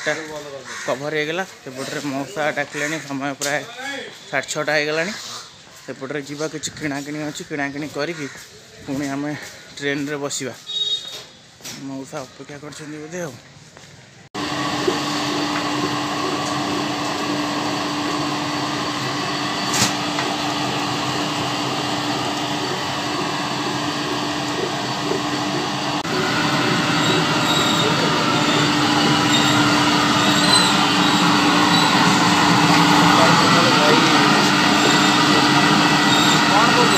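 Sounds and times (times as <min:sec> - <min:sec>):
steady mechanical hum: 0:14.4 - 0:36.9
dense noisy background: 0:18.6 - 0:36.9.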